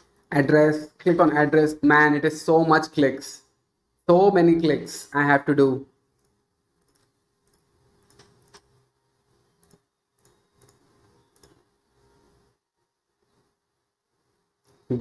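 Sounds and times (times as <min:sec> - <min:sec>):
mouse and keyboard clicks: 0:06.2 - 0:08.7, 0:09.6 - 0:11.6.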